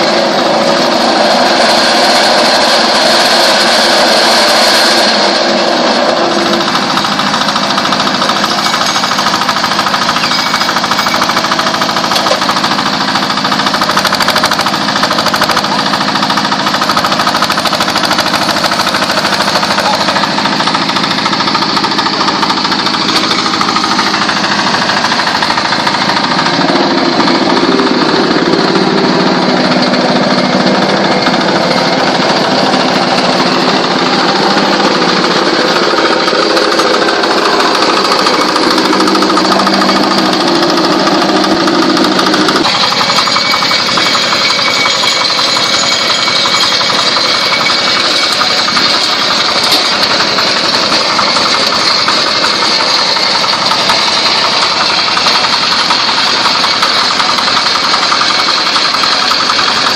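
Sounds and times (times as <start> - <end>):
diesel engine running: 0.0 - 59.9
deeper hum: 19.0 - 44.9.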